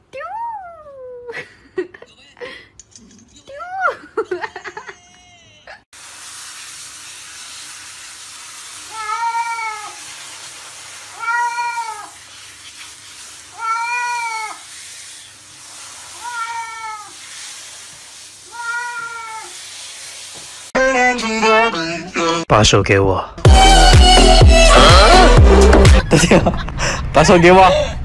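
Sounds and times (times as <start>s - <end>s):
shower water spraying: 5.9s - 20.8s
cat meowing: 8.9s - 10.0s, 11.1s - 12.2s, 13.5s - 14.6s, 16.2s - 17.2s, 18.5s - 19.6s.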